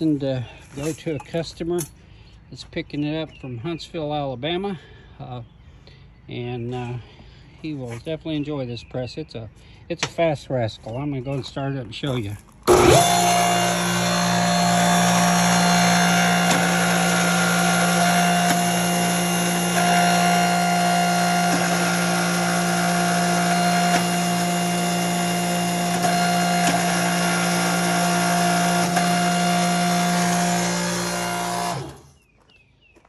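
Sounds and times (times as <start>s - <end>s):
hydraulic pump motor humming: 12.6s - 32.2s.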